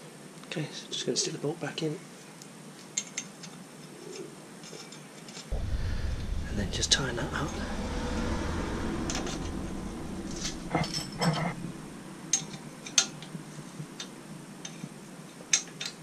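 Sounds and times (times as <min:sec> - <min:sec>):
metal scrape: 0:05.5 - 0:13.3.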